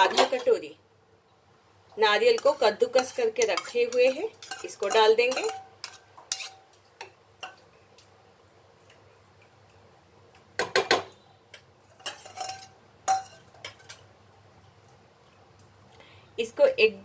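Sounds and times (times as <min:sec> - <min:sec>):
spoon clinking on metal cookware: 0:00.0 - 0:00.6, 0:02.3 - 0:07.6, 0:11.9 - 0:14.0.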